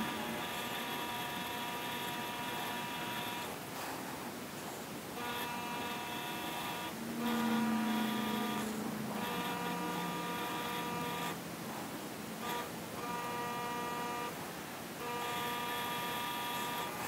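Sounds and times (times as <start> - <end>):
bead roller motor whining: 0.0 - 3.6, 5.2 - 11.4.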